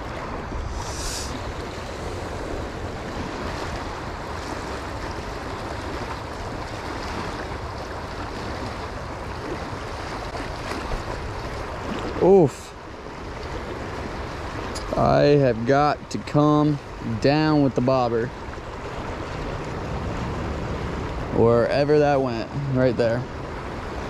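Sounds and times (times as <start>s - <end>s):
wind on microphone: 0.0s - 12.2s
brief high hiss: 0.7s - 1.4s
river rushing over rocks: 18.7s - 22.9s.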